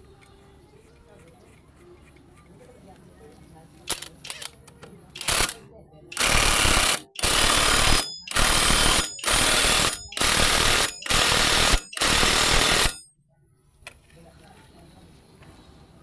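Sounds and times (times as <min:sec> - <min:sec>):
impact wrench hammering: 0:06.2 - 0:13.0.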